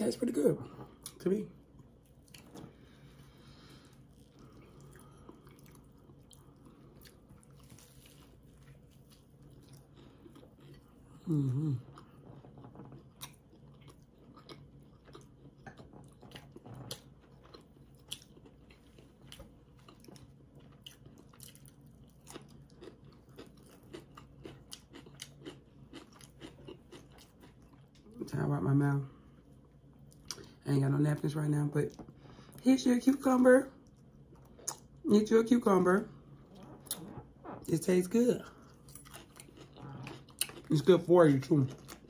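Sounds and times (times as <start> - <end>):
chewing food: 0.0 - 42.0
person humming mm: 11.2 - 11.9.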